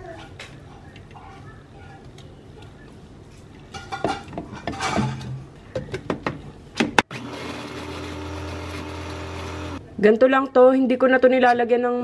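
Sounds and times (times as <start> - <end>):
blender motor hum: 7.1 - 9.8.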